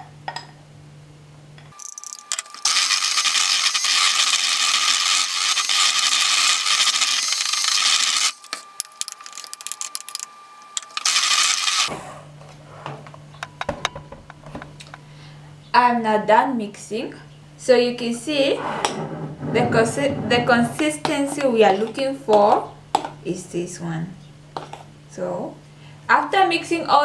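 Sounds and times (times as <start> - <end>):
electric hand mixer whining: 2.6 - 8.4.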